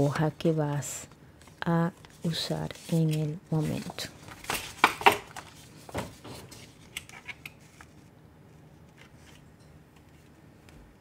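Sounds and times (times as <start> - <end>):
paper sheets rustling: 1.4 - 8.1.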